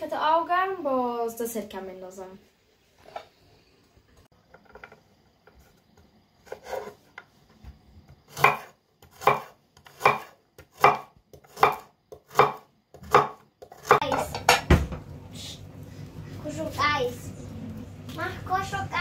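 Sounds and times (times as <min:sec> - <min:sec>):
knife chopping on wooden board: 0:08.3 - 0:14.9.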